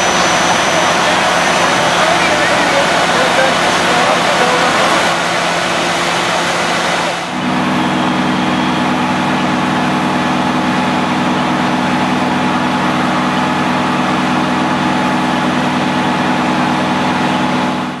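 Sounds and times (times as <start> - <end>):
rushing hissing noise: 0.0 - 7.4
fire truck engine running: 0.0 - 18.0.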